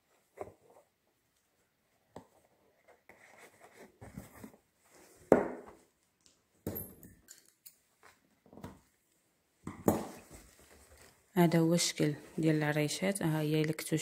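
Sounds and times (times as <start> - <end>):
fabric rustling: 10.0 - 12.7.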